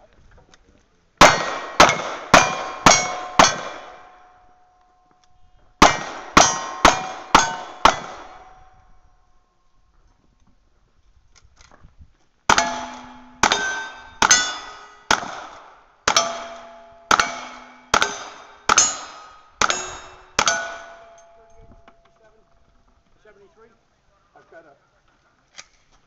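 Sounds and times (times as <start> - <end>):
rifle shots: 1.2 - 4.1, 5.8 - 8.6, 12.5 - 21.0
steel target ringing: 1.3 - 4.3, 6.3 - 8.8, 12.5 - 15.2, 16.1 - 22.0.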